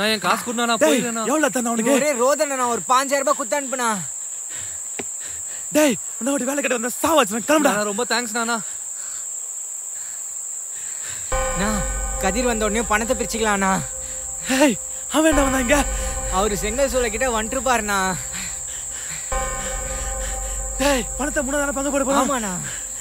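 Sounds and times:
crickets chirping: 0:00.0 - 0:23.0
low drone: 0:11.3 - 0:23.0.

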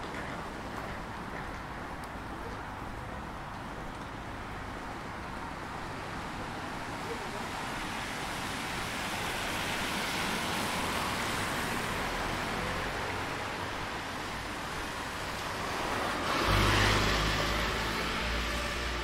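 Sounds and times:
tyres hissing on wet road: 0:05.6 - 0:19.0
vehicle passing close: 0:15.6 - 0:19.0.

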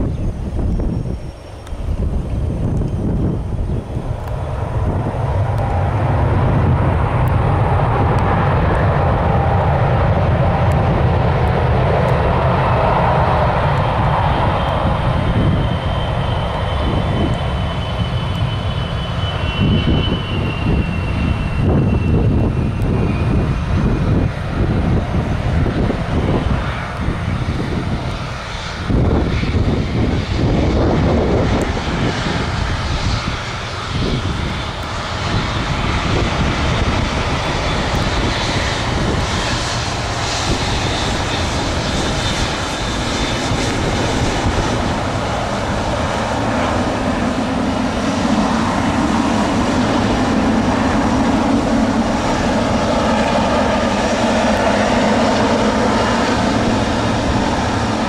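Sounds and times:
airliner engines rumbling: 0:00.0 - 0:58.0.

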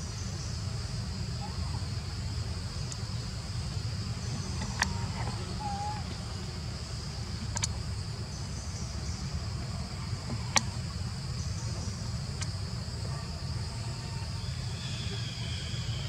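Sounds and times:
insect chorus: 0:00.0 - 0:16.0.

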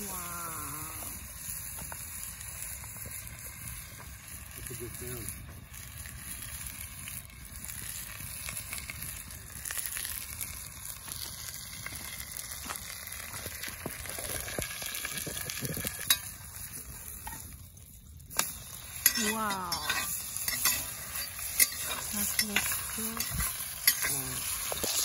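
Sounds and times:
steak sizzling in a pot: 0:00.0 - 0:25.0
spatula scraping a pot: 0:19.0 - 0:25.0.

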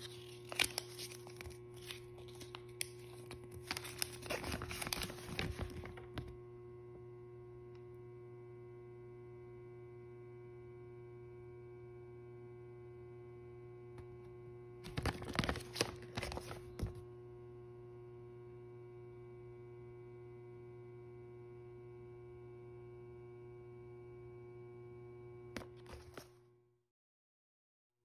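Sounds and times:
paper rustling and crinkling: 0:00.0 - 0:06.3, 0:14.8 - 0:17.0, 0:25.6 - 0:26.4
steady electrical hum: 0:00.0 - 0:11.2.

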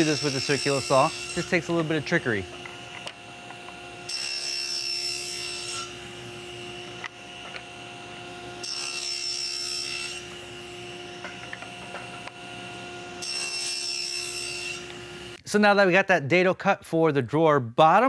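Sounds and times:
saw blade cutting plywood: 0:00.0 - 0:15.4
table saw whine: 0:00.0 - 0:15.4.

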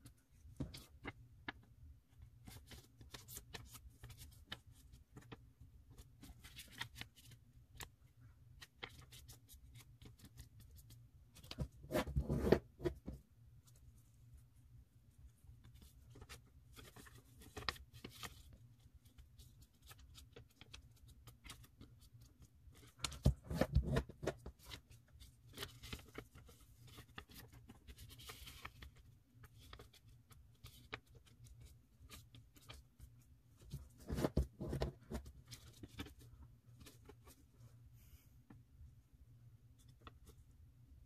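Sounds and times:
paper rustling and crinkling: 0:15.6 - 0:37.6.

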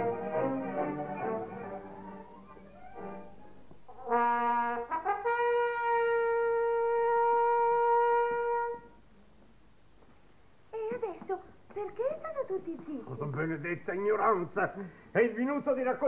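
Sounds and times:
orchestral music: 0:00.0 - 0:05.2
solo trumpet: 0:00.0 - 0:09.0.

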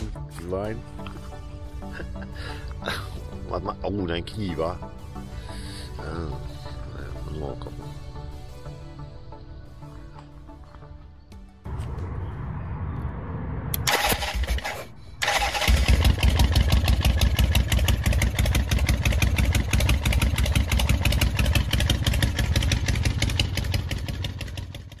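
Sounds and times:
motorcycle engine starting: 0:13.7 - 0:25.0.

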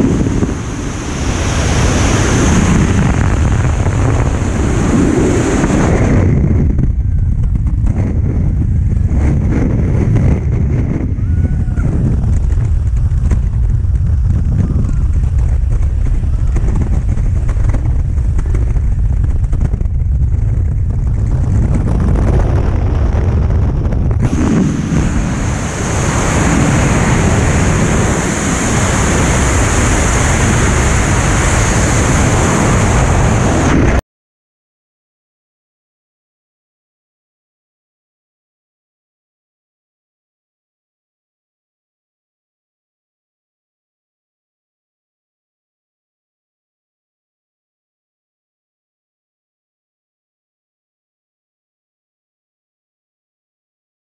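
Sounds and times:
wind rushing over microphone: 0:00.0 - 0:34.0.

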